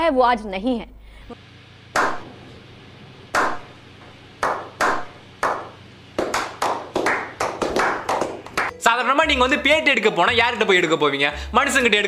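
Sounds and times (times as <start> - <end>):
sharp smacks: 2.0 - 2.3, 3.4 - 3.7.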